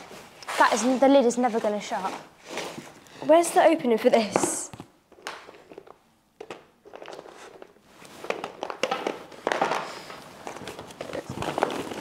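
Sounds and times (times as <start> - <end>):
hard treats clattering into plastic tubs: 5.3 - 12.0
plastic bag crinkling: 7.0 - 12.0.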